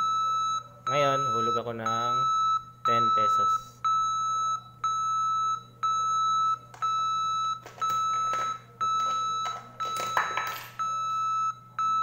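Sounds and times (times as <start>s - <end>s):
electronic beeps: 0.0s - 12.0s
coin clattering into slot: 10.0s - 10.8s.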